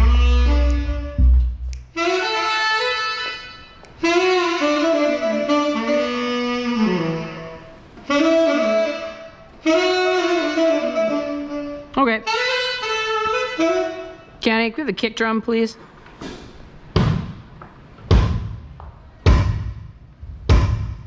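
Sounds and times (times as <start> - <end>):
saxophone playing: 0.0 - 14.4.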